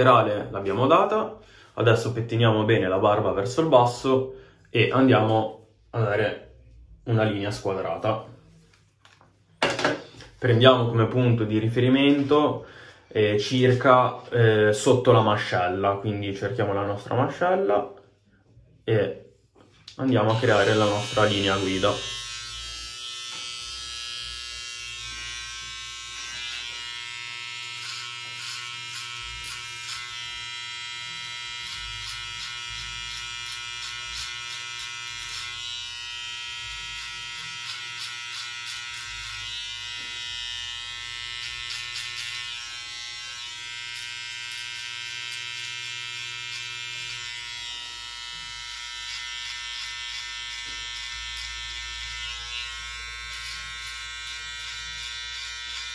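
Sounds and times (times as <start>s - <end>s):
electric hair clipper buzzing: 20.2s - 55.9s.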